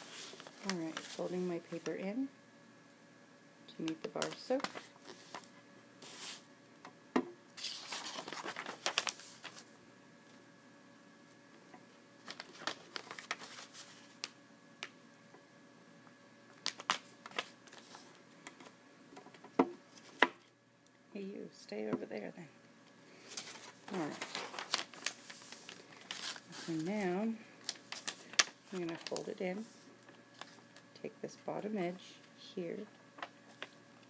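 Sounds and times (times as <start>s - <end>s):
paper crinkling and rustling: 0.0s - 2.0s, 3.8s - 6.4s, 7.6s - 9.7s, 12.2s - 14.4s, 16.5s - 18.7s, 23.2s - 30.9s, 33.2s - 33.8s.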